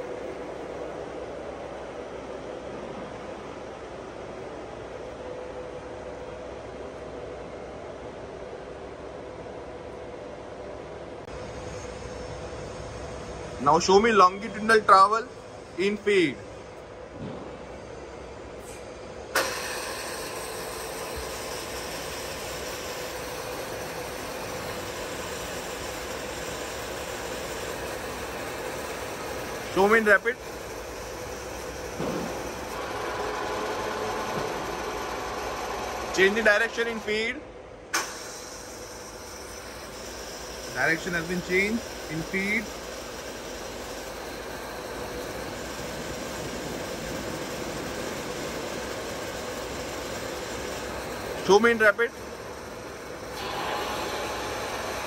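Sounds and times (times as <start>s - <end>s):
milling machine whining: 11.3s - 55.0s.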